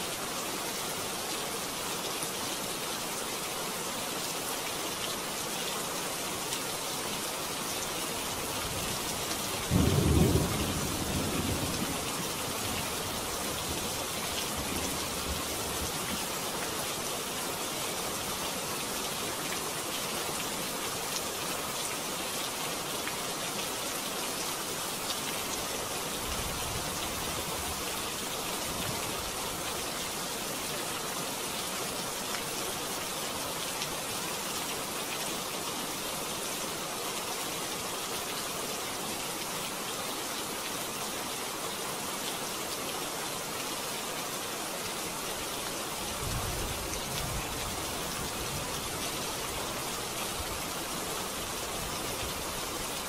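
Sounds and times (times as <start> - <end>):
steady rain hissing: 0.0 - 53.0
thunder rumbling: 9.7 - 12.0.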